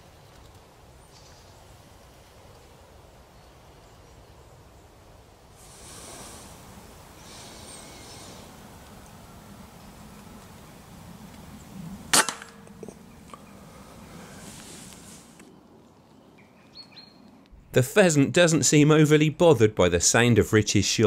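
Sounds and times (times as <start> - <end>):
short hissing rustles: 5.5 - 9.1, 13.8 - 15.5.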